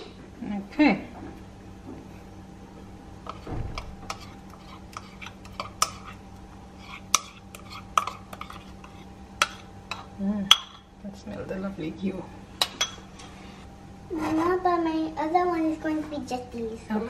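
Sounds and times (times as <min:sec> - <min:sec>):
metal utensil scraping ceramic bowl: 0:03.3 - 0:10.9.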